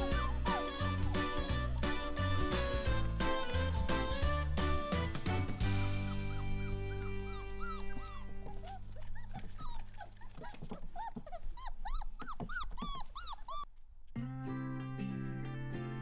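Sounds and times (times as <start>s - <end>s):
puppies whining and yelping: 0.0s - 2.8s, 5.6s - 13.8s
background music: 0.0s - 8.7s.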